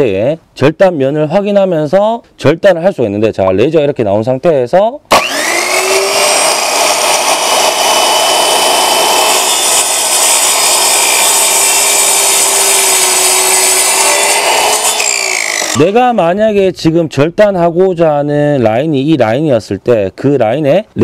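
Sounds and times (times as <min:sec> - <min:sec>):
miter saw cutting wood: 0:05.1 - 0:16.0.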